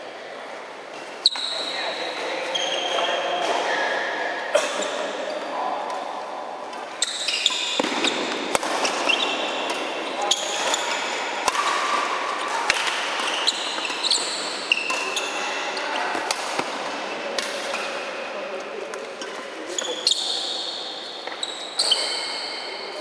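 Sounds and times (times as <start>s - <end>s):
shoes squeaking on court: 1.0s - 4.2s, 6.8s - 16.3s, 19.0s - 23.0s
rackets striking shuttlecock: 6.7s - 15.4s, 16.0s - 18.0s.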